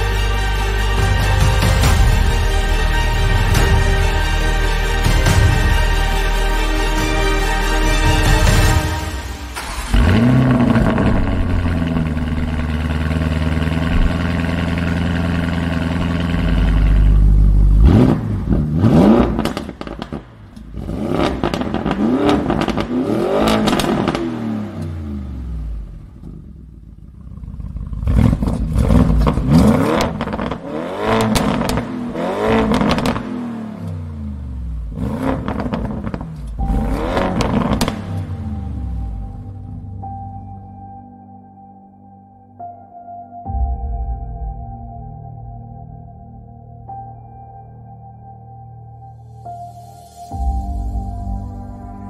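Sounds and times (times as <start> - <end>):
engine revving: 7.5 - 39.8
car engine idling: 8.0 - 40.2.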